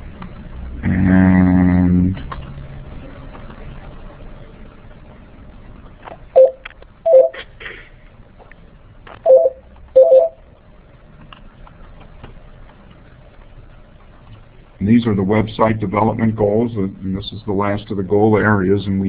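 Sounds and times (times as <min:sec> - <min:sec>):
electronic telephone beeps: 0:06.4 - 0:07.4, 0:09.3 - 0:10.4.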